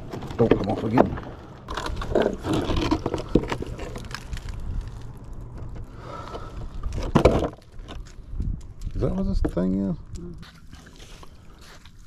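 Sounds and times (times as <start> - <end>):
metal scraping against concrete: 0.0 - 4.5.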